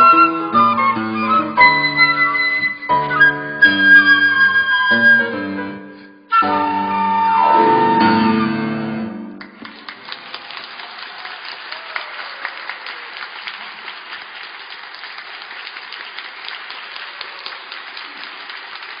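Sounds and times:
audience applauding: 0:09.4 - 0:19.0.

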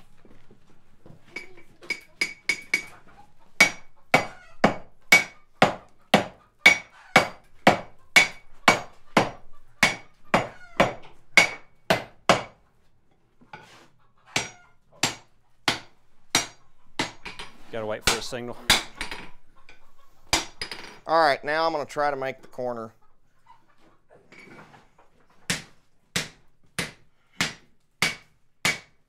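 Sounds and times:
sledgehammers striking iron on anvil: 0:01.9 - 0:02.9, 0:03.6 - 0:12.6, 0:14.4 - 0:19.3, 0:25.5 - 0:29.0.

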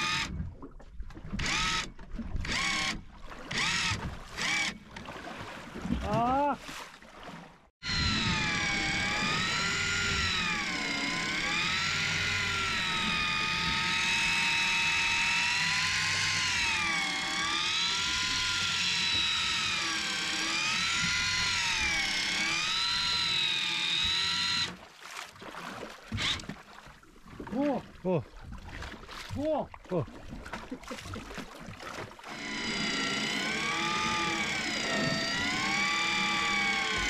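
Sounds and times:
electric fishing reel motor whining: 0:00.0 - 0:00.3, 0:01.4 - 0:04.8, 0:07.8 - 0:24.8, 0:26.2 - 0:26.4, 0:32.3 - 0:37.0.

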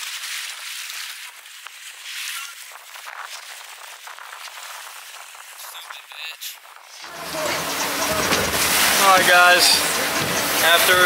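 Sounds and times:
sea water splashing alongside boat: 0:07.0 - 0:11.0.

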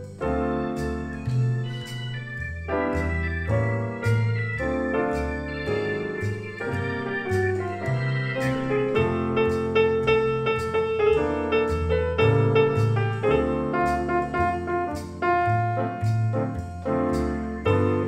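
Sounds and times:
bass line: 0:00.0 - 0:18.0
electronic keyboard accompanying: 0:00.0 - 0:18.0
grand piano solo: 0:00.0 - 0:18.0.

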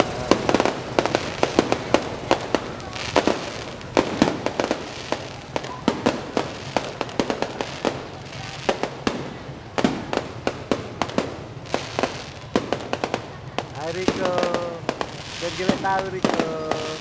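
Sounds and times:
fireworks bangs and pops: 0:00.0 - 0:17.0
fireworks hiss: 0:00.0 - 0:17.0.

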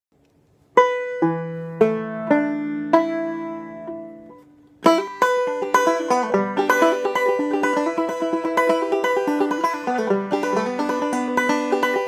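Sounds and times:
banjo single notes plucked: 0:00.6 - 0:12.0
fast banjo picking: 0:00.7 - 0:12.0.

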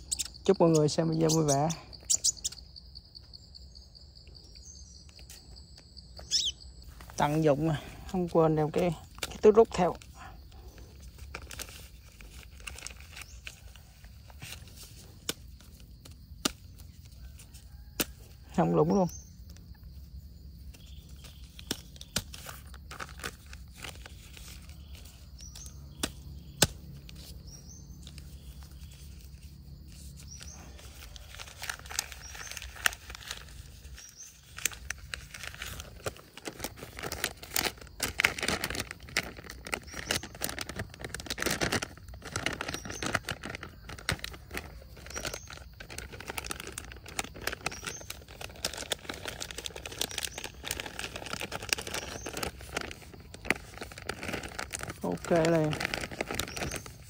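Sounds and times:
high rising bird chirps: 0:00.0 - 0:07.6
bag crinkling and rustling: 0:06.3 - 0:15.8, 0:20.8 - 0:57.0.

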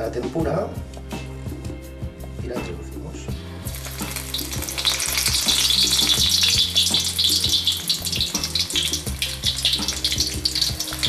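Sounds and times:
prawn deep-frying in oil: 0:03.6 - 0:11.0.

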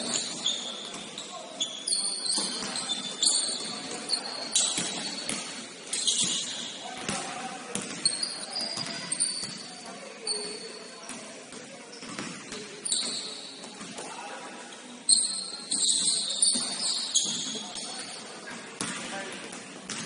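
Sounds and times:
sneakers squeaking: 0:00.0 - 0:14.2, 0:15.1 - 0:20.0
basketball bouncing: 0:04.6 - 0:05.5.

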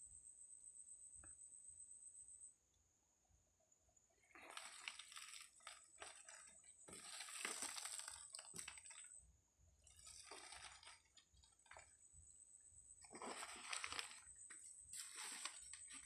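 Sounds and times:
newspaper rustling and crinkling: 0:04.4 - 0:09.2, 0:10.0 - 0:11.6, 0:13.1 - 0:16.0.

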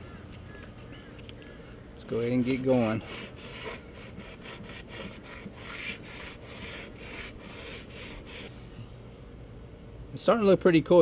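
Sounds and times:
sandpaper rubbing on wood: 0:02.7 - 0:08.5.

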